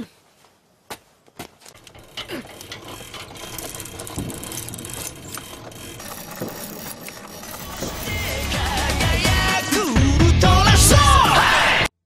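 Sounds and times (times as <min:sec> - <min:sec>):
hand-cranked winch clicking: 0:01.6 - 0:11.2.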